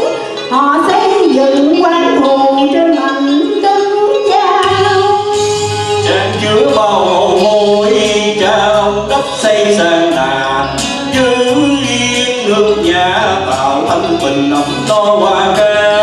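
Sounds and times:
musical accompaniment: 0.0 - 16.0
man singing into a microphone: 4.7 - 16.0.

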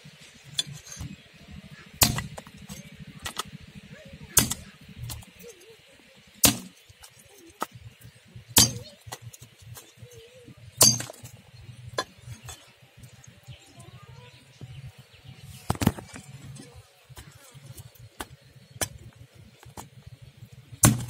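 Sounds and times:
cleaver chopping on wooden block: 2.0 - 2.5, 4.4 - 5.2, 6.4 - 6.7, 8.6 - 9.2.

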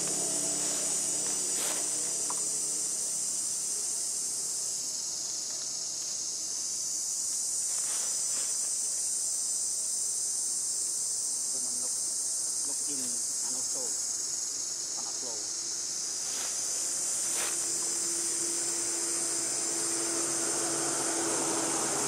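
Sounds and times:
insects chirring: 0.0 - 22.0
faint rustles: 7.6 - 8.8, 16.1 - 17.9.

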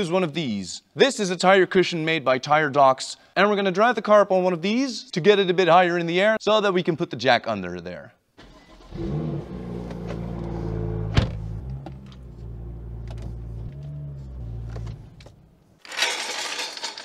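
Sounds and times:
car engine running at low revs: 8.9 - 15.5.

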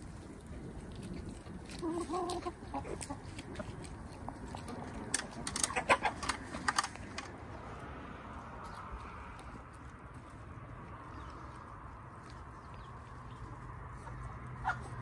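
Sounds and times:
drawn-out hen call: 0.0 - 7.4, 11.1 - 15.0
hens clucking: 0.8 - 7.4, 12.3 - 15.0.

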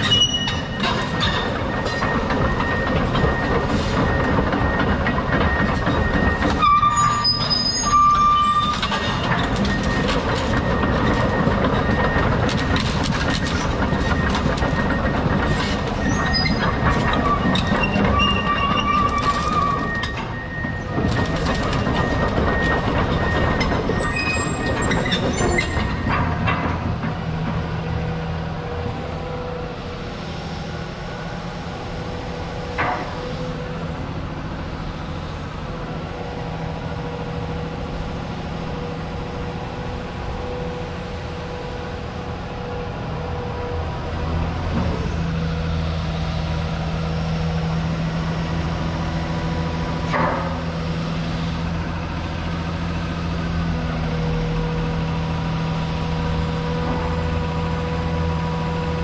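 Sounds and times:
machine clunks and squeaks: 0.0 - 27.6, 32.7 - 33.4, 50.0 - 50.7
excavator diesel engine running: 0.0 - 59.0.

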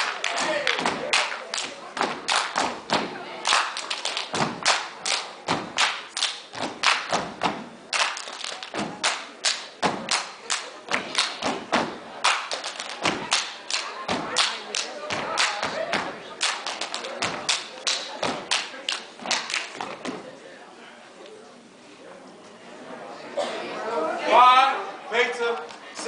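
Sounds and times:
rhythmic clapping: 0.0 - 20.2.

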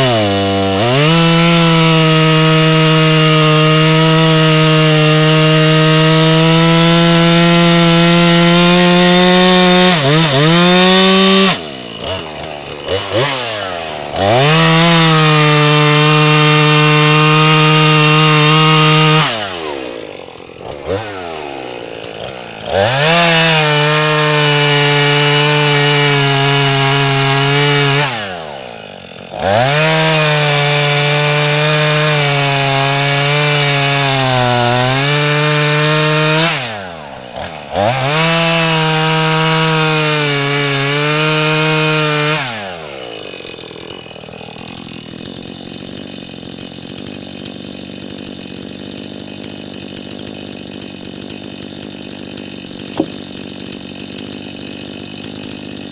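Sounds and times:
chainsaw cutting logs: 0.0 - 55.9.

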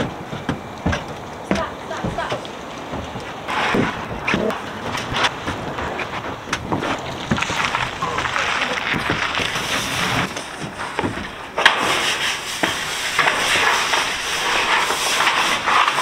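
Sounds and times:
footsteps on plywood ramp: 0.0 - 11.5
wind on microphone: 1.6 - 15.8.

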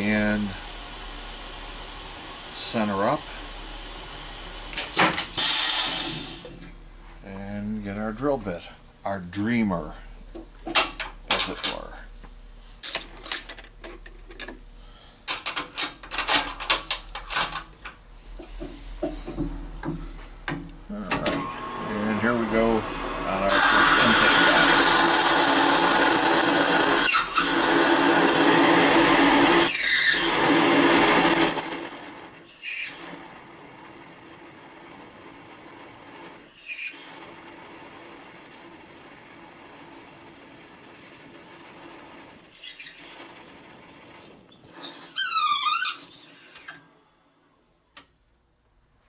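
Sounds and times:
machine spindle humming: 20.9 - 36.5, 37.1 - 44.8
high-pitched cutting squeal: 29.2 - 30.4, 31.3 - 34.9, 36.3 - 46.5.

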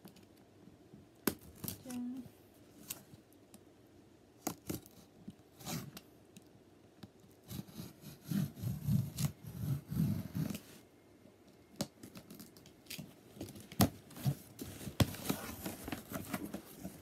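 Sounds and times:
cardboard parcel clicks and scrapes: 12.0 - 17.0.

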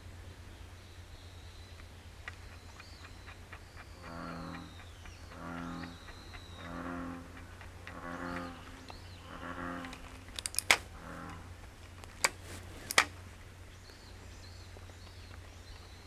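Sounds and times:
sharp clicks: 1.8 - 9.2, 9.8 - 13.2
low droning animal calls: 2.5 - 11.6.

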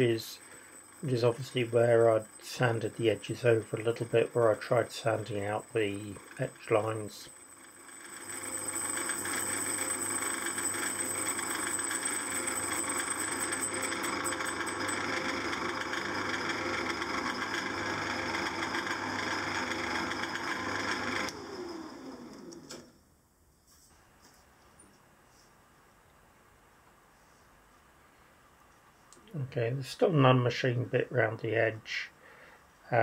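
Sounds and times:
lathe running: 0.0 - 22.8.

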